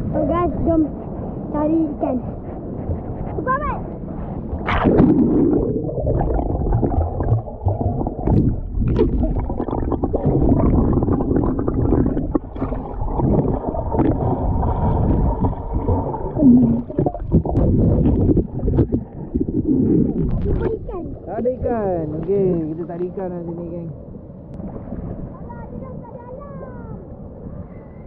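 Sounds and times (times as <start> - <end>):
underwater river gurgling: 3.9 - 28.0
dull underwater knocks: 4.5 - 22.8.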